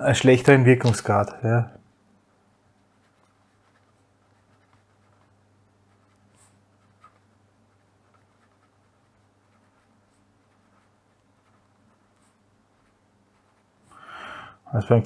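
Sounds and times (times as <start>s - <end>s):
low steady hum: 0.0s - 15.0s
pen scratching on paper: 2.8s - 13.9s.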